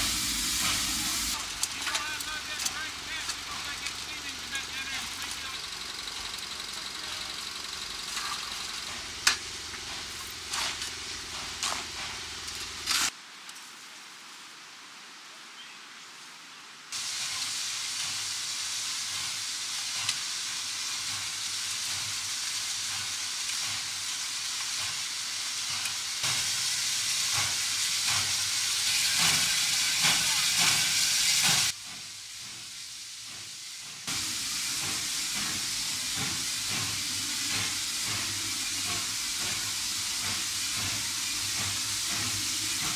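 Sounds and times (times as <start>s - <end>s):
steam locomotive hissing: 0.0s - 13.1s, 17.0s - 42.9s
engine hum: 2.6s - 12.9s.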